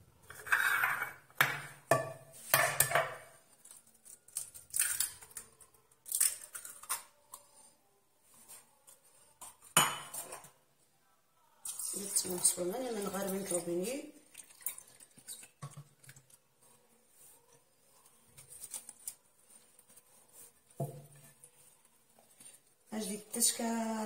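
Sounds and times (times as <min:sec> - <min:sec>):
egg cracking: 0:03.5 - 0:07.4.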